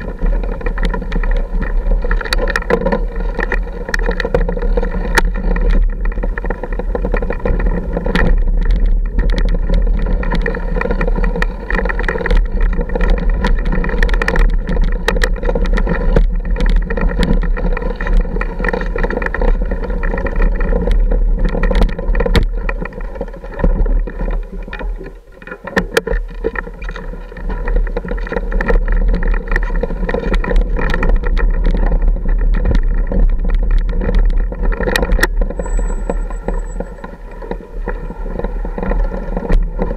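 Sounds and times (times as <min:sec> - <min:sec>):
wheels knocking on rocks: 0:00.0 - 0:39.9
dirt bike engine running: 0:26.1 - 0:39.9.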